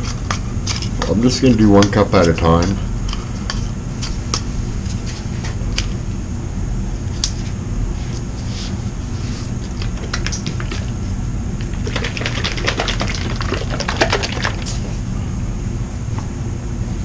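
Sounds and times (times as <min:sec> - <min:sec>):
steady low hum: 0:00.0 - 0:17.0
plastic cups clicking: 0:09.8 - 0:10.9, 0:11.6 - 0:14.9.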